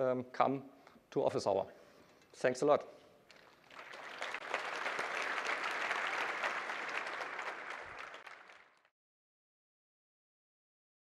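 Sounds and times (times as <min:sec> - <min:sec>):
audience applauding: 0:03.3 - 0:08.9.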